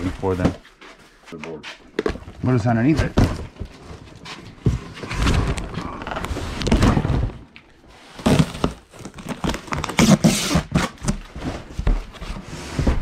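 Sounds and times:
boxes and items knocking: 0:01.9 - 0:07.4, 0:08.2 - 0:13.0.

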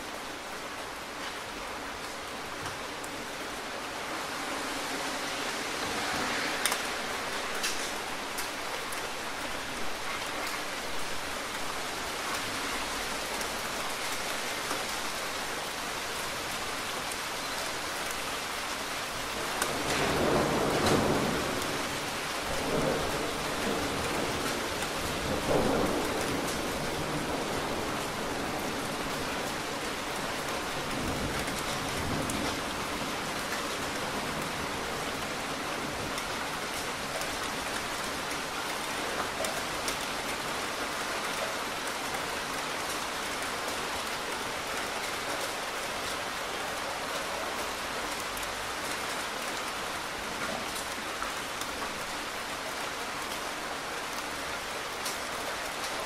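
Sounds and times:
heavy rainfall: 0:00.0 - 0:56.0.

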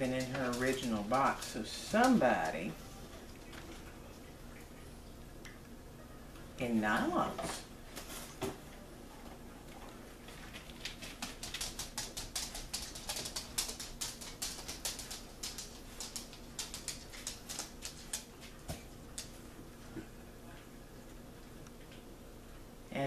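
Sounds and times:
dog nails clicking on hard floor: 0:00.0 - 0:02.6, 0:10.6 - 0:19.4.

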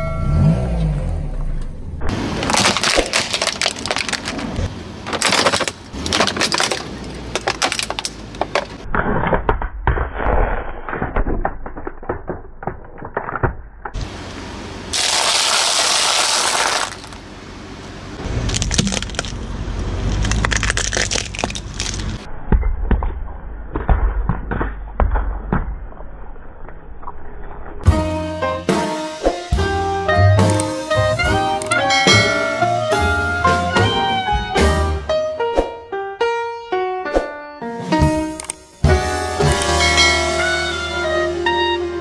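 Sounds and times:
plastic toys cracking: 0:02.4 - 0:14.0, 0:15.0 - 0:17.2, 0:18.4 - 0:22.2.

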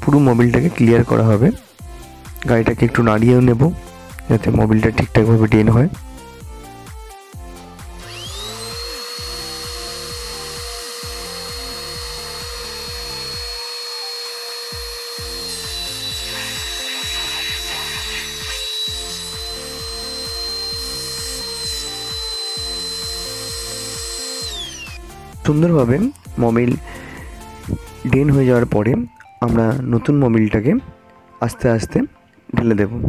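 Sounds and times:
electric air blower whining: 0:05.4 - 0:28.2.

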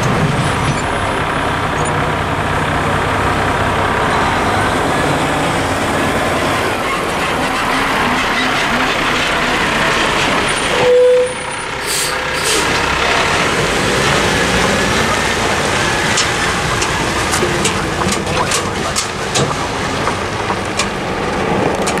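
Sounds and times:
diesel truck engine running: 0:00.0 - 0:22.0
gravel clicking under tyres: 0:12.8 - 0:22.0.

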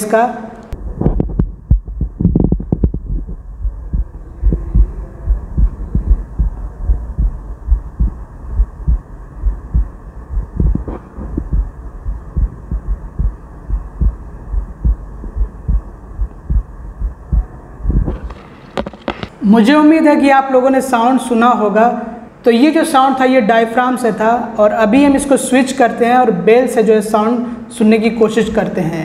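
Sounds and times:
heartbeat thumps: 0:00.8 - 0:19.2.

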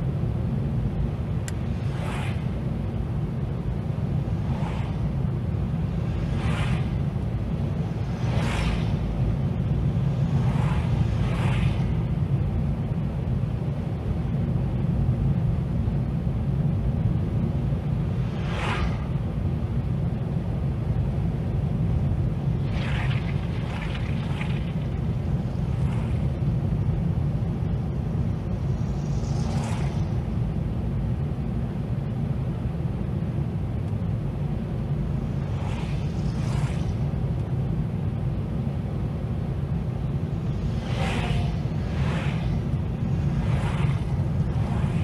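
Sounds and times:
car engine and tyres rumbling: 0:00.0 - 0:45.0
passing vehicles whooshing: 0:01.0 - 0:13.4, 0:17.4 - 0:21.0, 0:22.5 - 0:31.8, 0:34.4 - 0:45.0.

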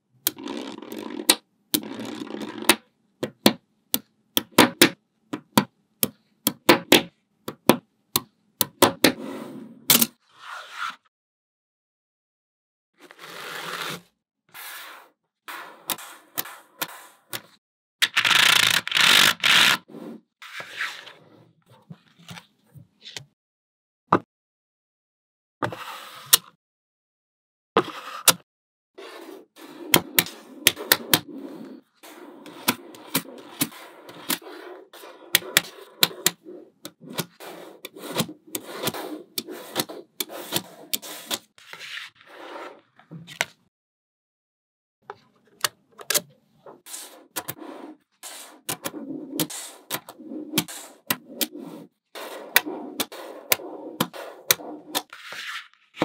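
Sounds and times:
balls rolling and scraping: 0:00.3 - 0:02.8, 0:29.0 - 0:43.3, 0:46.5 - 0:56.0.

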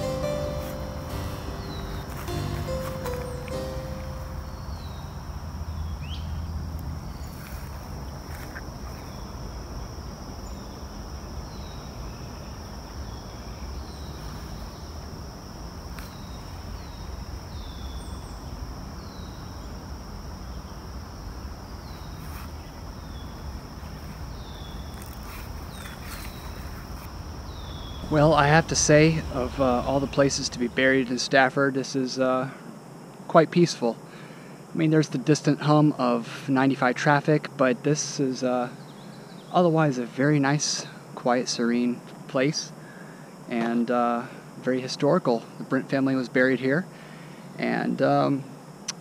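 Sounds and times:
distant highway traffic hum: 0:00.0 - 0:34.7
high insect drone: 0:00.0 - 0:49.0.

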